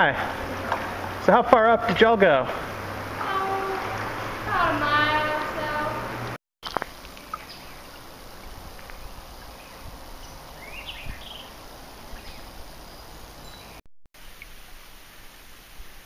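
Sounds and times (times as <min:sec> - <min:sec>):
steady outdoor hiss: 0:00.0 - 0:16.0
faint bird chirps: 0:09.5 - 0:13.8.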